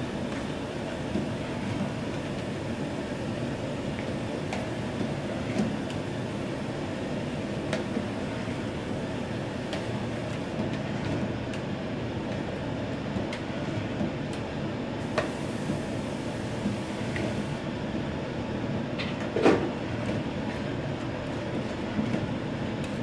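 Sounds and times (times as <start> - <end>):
gas burner rushing: 15.0 - 17.6.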